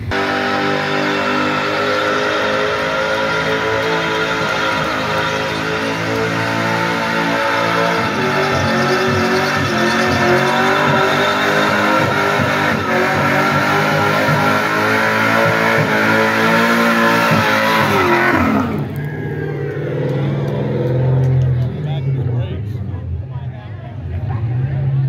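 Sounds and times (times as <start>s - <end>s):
car engine revving: 0.0s - 25.0s
tyres screeching: 0.1s - 19.6s.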